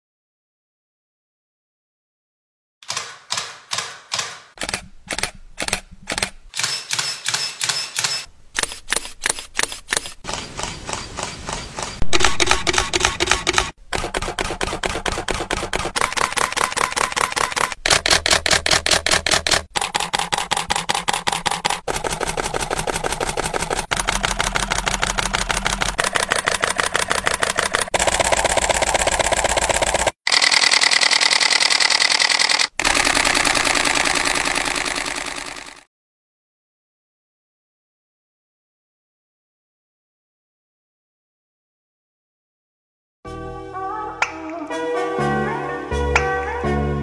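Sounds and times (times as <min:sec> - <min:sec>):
camera shutter clicks: 0:02.8 - 0:13.8, 0:14.4 - 0:19.6, 0:30.3 - 0:33.2.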